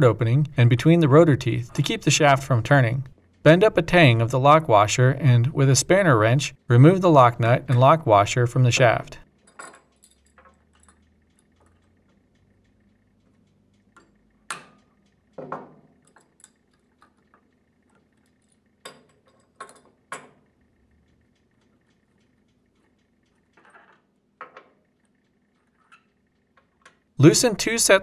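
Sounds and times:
tools clinking on wooden workbench: 0:09.4 - 0:11.0.

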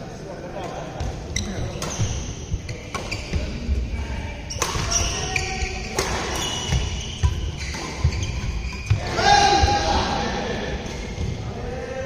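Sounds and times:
racket hitting shuttlecock: 0:01.0 - 0:03.5, 0:04.6 - 0:09.7
shoes squeaking on court: 0:01.0 - 0:03.7, 0:04.5 - 0:09.2.

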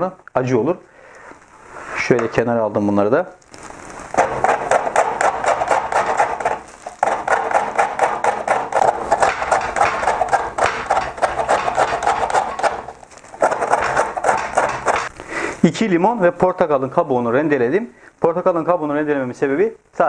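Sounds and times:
citrus peel grating on grater: 0:04.1 - 0:15.1.

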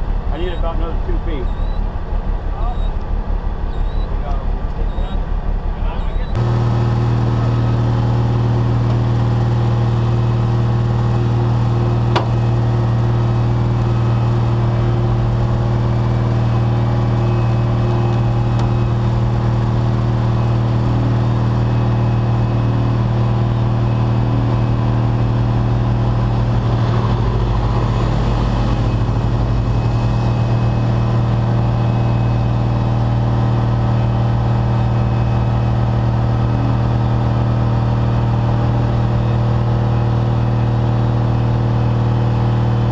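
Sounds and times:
diesel engine running: 0:00.0 - 0:42.9.

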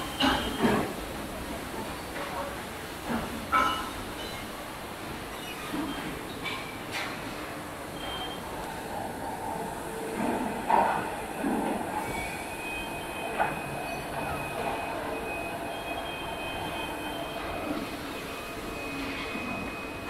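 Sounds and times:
machines and conveyors running: 0:07.6 - 0:20.0.

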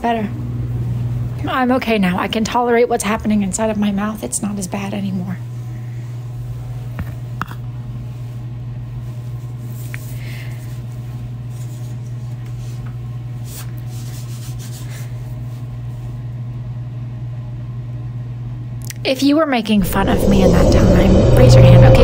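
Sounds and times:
low hum: 0:19.7 - 0:22.0.

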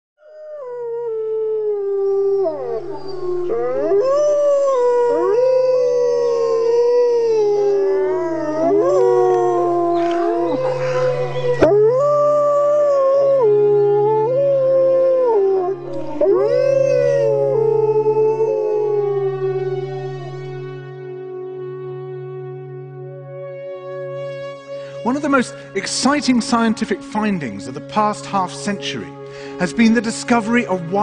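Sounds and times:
wolves howling: 0:00.3 - 0:20.8.

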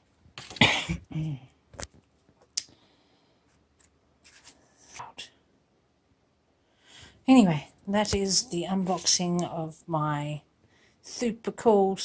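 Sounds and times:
paper rustling: 0:03.8 - 0:04.6.

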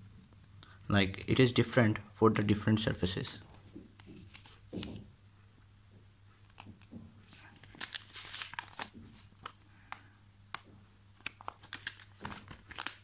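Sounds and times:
paper pages rustling: 0:03.3 - 0:05.0, 0:06.4 - 0:09.7, 0:11.2 - 0:13.0.

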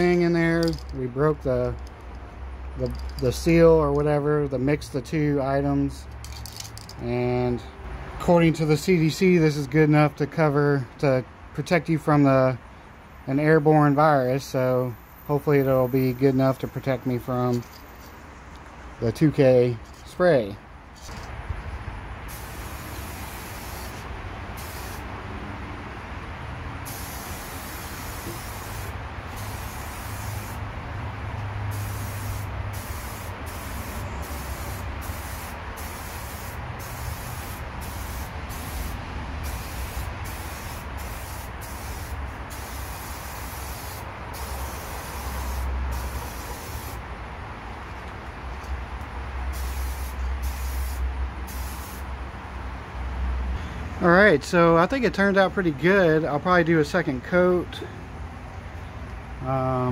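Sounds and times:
aerosol can spraying: 0:22.3 - 0:25.1, 0:26.9 - 0:30.6, 0:31.7 - 0:47.0, 0:49.6 - 0:52.0.

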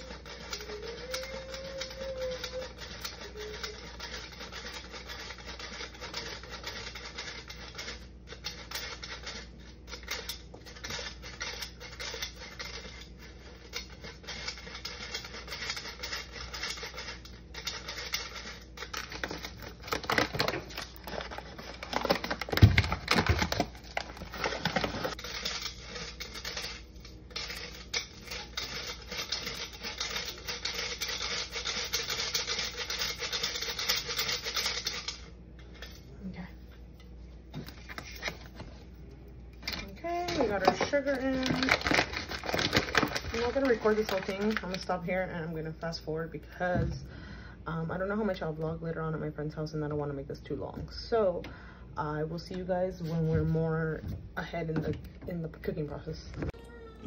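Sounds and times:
flour sifter rasping and clicking: 0:00.0 - 0:35.0, 0:39.8 - 0:45.1.

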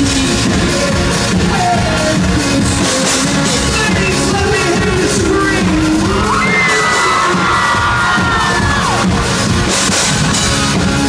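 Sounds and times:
man singing lead vocal: 0:00.0 - 0:08.8
pop-rock band playing: 0:00.0 - 0:11.0.

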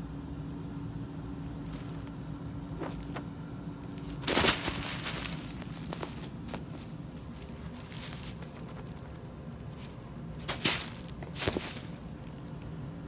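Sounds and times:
steady low hum: 0:00.0 - 0:13.0
tissue paper rustling and crinkling: 0:04.0 - 0:08.7, 0:09.8 - 0:12.4.

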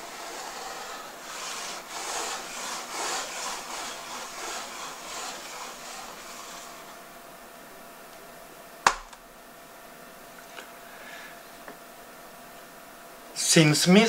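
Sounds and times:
eraser rubbing on chalkboard: 0:00.0 - 0:07.0.

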